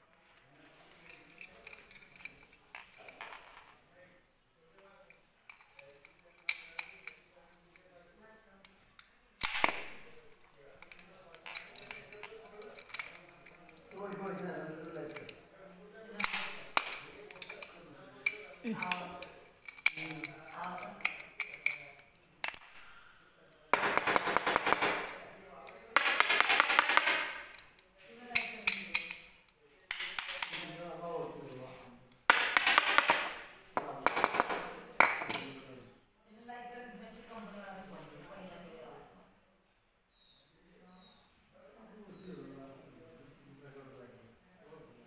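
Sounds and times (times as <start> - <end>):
padlock clicking and clinking: 5.5 - 7.2, 9.4 - 10.1, 10.8 - 15.4, 16.2 - 22.9.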